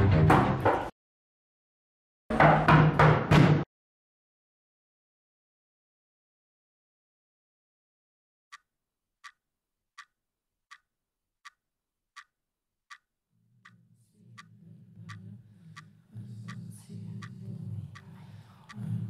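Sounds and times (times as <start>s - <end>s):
pendulum wall clock ticking: 8.5s - 9.4s, 10.0s - 11.6s, 12.2s - 19.0s.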